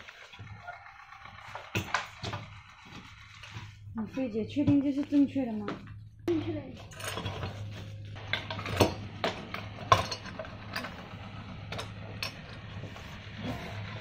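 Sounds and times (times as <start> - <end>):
low steady hum: 1.8 - 14.0
metal parts clinking: 6.8 - 11.0.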